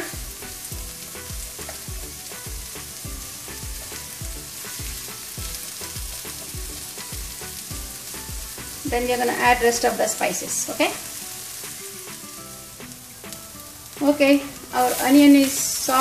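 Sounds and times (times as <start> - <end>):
onions sizzling in a frying pan: 0.0 - 16.0.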